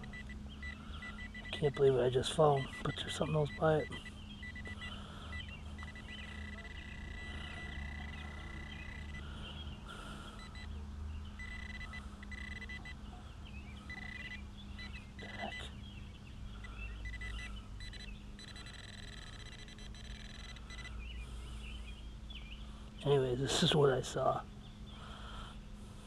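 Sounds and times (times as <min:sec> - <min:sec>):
metal detector high-pitched tone: 0:00.0 - 0:09.2, 0:11.4 - 0:12.9, 0:17.0 - 0:20.9
birds chirping: 0:00.0 - 0:26.0.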